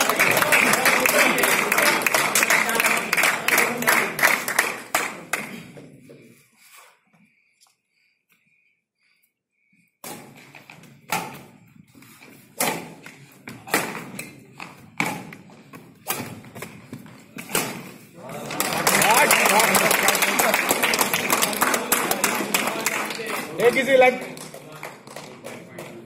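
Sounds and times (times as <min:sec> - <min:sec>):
people clapping: 0:00.0 - 0:06.0, 0:18.1 - 0:26.0
racket striking shuttlecock: 0:10.0 - 0:11.6, 0:12.6 - 0:18.0.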